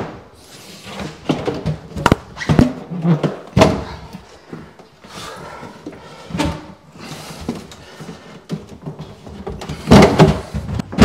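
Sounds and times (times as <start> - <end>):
wooden cabinet knocking and bumping: 8.6 - 11.0.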